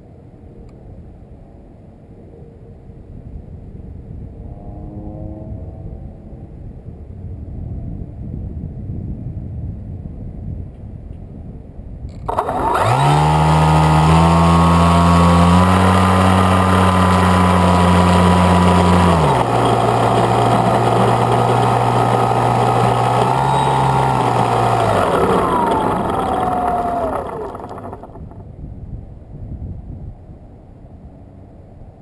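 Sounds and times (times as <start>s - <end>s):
electric motor and propeller whine: 12.2s - 28.4s.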